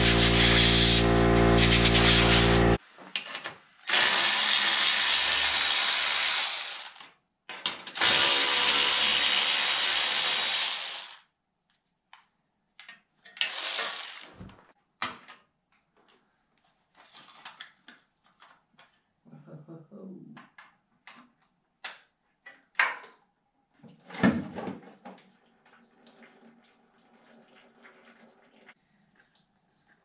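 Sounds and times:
compressed air blasting: 0.0 - 2.8.

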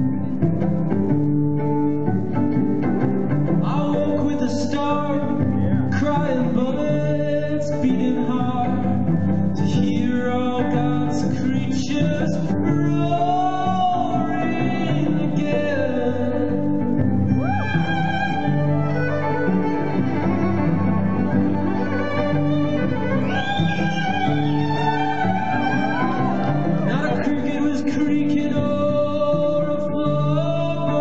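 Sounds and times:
plucked and bowed strings: 0.0 - 31.0
man singing: 3.6 - 18.5, 26.3 - 31.0.

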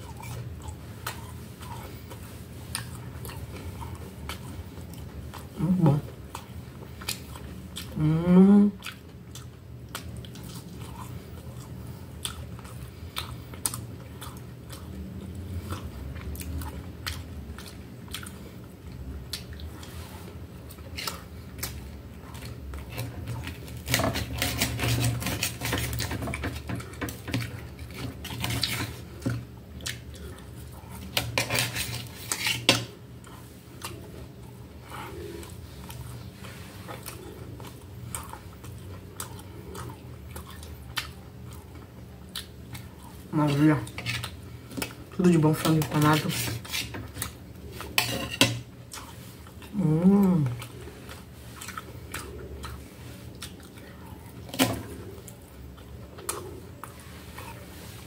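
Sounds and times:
chewing: 0.0 - 58.0
person humming mm: 5.6 - 6.1, 7.9 - 8.8, 49.7 - 50.7.

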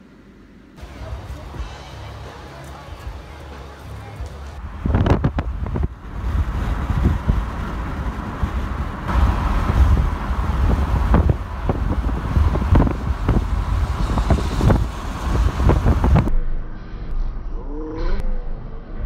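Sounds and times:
road traffic passing: 0.0 - 16.3
wind rumbling on microphone: 4.4 - 16.7.

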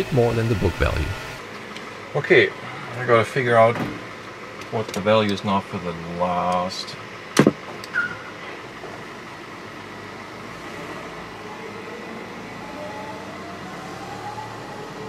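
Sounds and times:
faint rising whine: 0.0 - 1.4.

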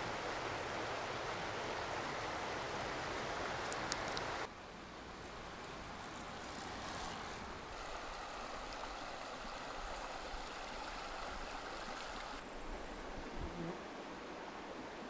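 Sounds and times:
flowing water rushing: 0.0 - 13.2.

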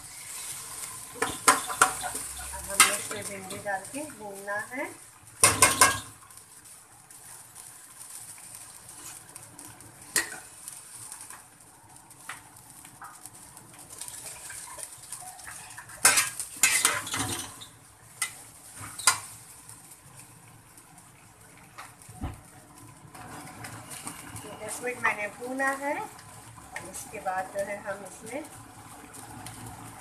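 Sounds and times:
faint oil sizzle: 0.0 - 30.0
metal spatula scraping a pot: 0.1 - 3.7, 10.1 - 10.5, 15.4 - 19.3.

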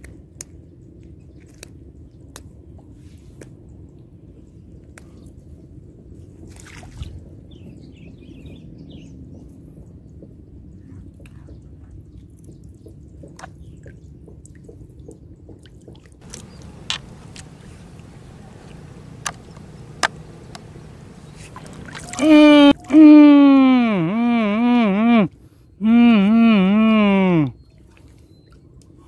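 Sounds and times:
small clicks and taps: 16.2 - 21.7
steady low rumble: 16.2 - 22.5
faint high twittering: 16.2 - 22.7.

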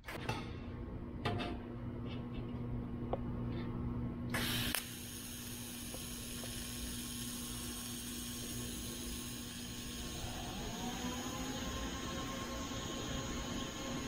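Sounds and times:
welding arc hissing: 4.3 - 14.0.

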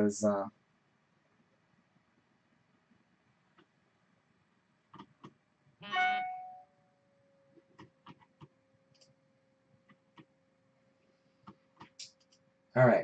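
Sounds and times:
short ringing tone: 5.8 - 6.7
faint steady tone: 5.8 - 13.0.

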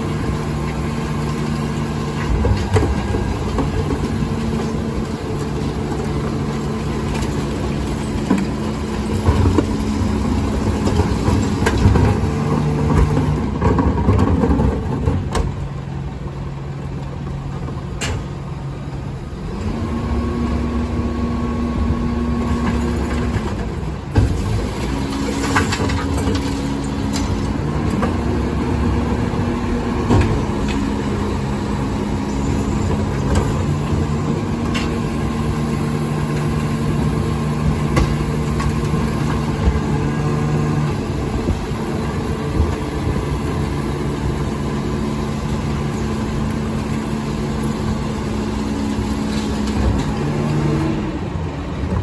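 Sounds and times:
truck engine running: 0.0 - 52.0
bins knocking and clanking: 2.2 - 15.8, 37.7 - 40.0.

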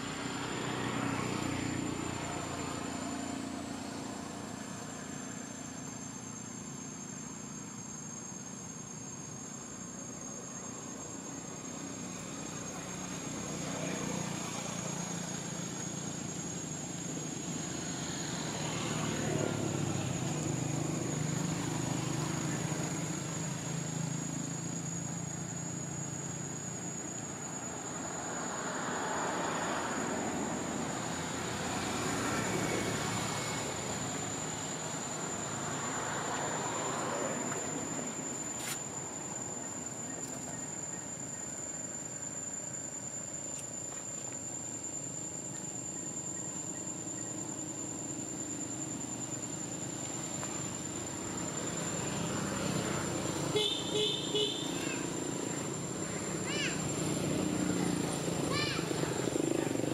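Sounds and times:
passing traffic: 0.0 - 7.2, 11.4 - 59.9
high-pitched insect drone: 0.0 - 59.9
vehicle engine hum: 46.6 - 59.9.

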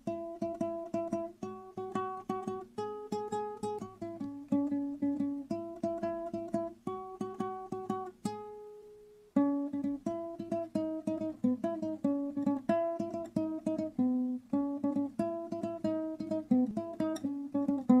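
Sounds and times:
plucked string instrument music: 0.0 - 18.0.

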